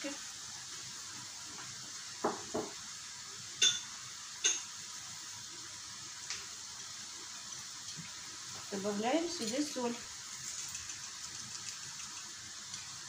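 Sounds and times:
vegetables sizzling in oil: 0.0 - 13.0
soft knocks of dishes: 2.2 - 2.8.

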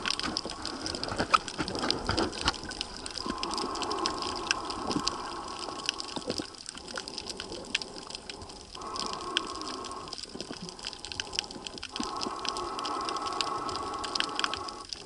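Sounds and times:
water rushing and bubbling underwater: 0.0 - 15.0.

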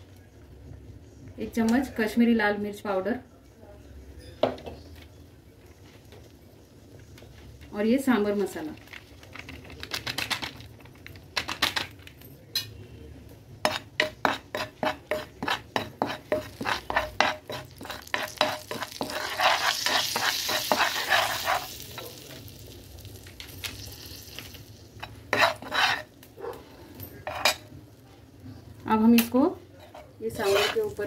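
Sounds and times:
spatula scraping a frying pan: 13.6 - 22.2, 24.9 - 26.2, 27.2 - 27.7, 29.8 - 31.0
spices sizzling in oil: 13.6 - 26.5, 27.2 - 31.0.

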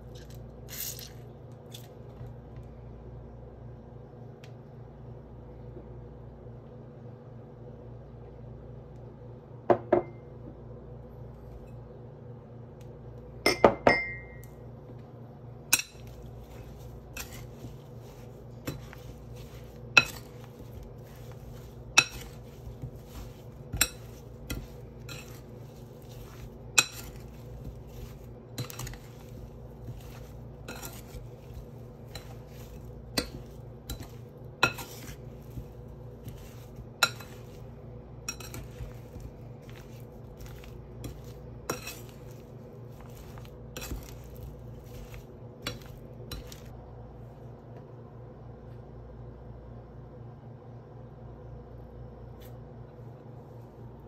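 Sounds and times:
spoon clinking against glass bowl: 13.5 - 14.5, 37.0 - 37.6, 38.3 - 39.0.

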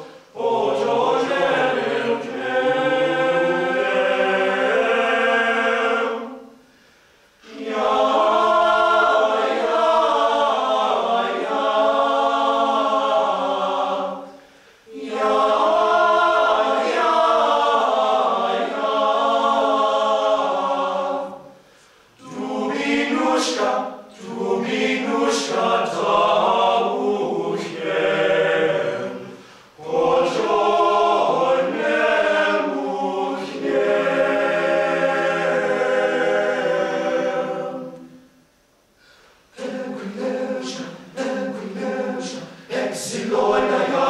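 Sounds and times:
men singing a cappella: 39.5 - 44.0.

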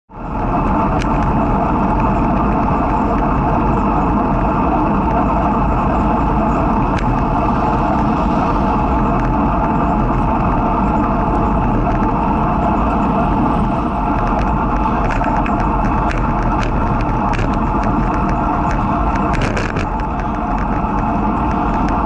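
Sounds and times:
road noise: 0.1 - 22.0
wind rush: 0.1 - 22.0
camera rattling clicks: 14.2 - 22.0.

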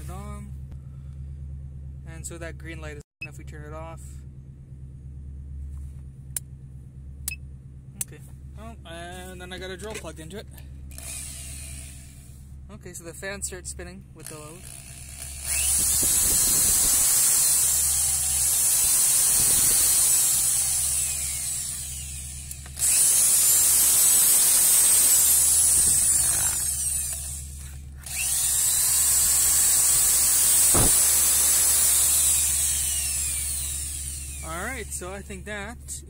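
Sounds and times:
electric drill spinning: 10.9 - 12.3, 14.6 - 34.8.

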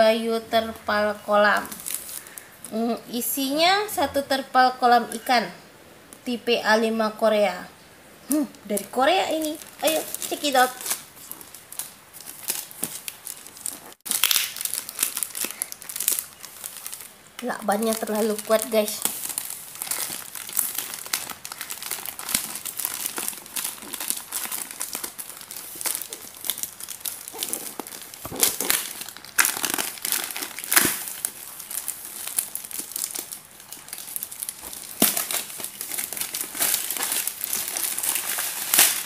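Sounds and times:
plastic bag crinkling: 1.4 - 2.6, 8.7 - 39.0
plastic tarpaulin rustling: 9.4 - 39.0.

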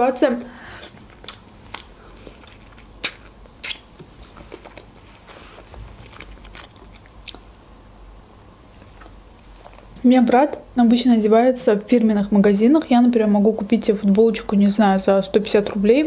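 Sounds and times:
person chewing chicken wings: 0.8 - 8.1.

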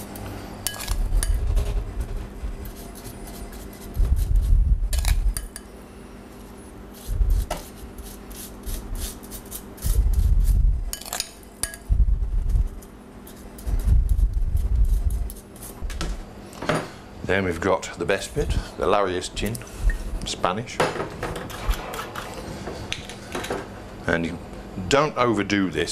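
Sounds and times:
dull low thumps: 4.0 - 5.0, 10.0 - 10.9, 11.9 - 12.8
metal spoon clinking on glass bowl: 11.0 - 11.9.

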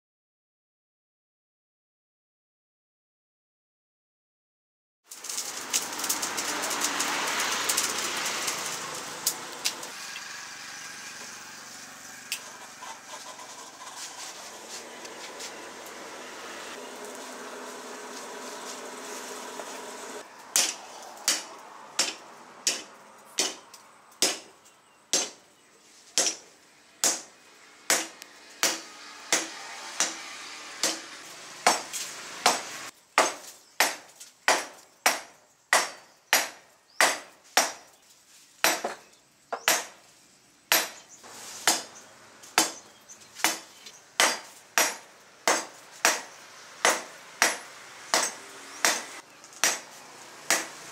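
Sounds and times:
hammer striking metal on anvil: 44.2 - 49.9, 50.5 - 50.8.

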